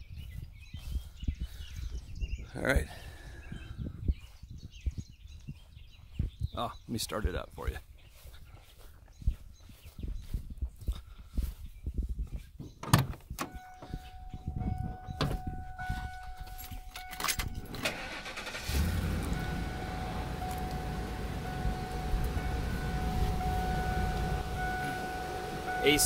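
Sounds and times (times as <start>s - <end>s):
van door clicks and knocks: 12.6s - 14.0s, 14.8s - 16.2s
engine cranking and idling: 13.4s - 26.0s.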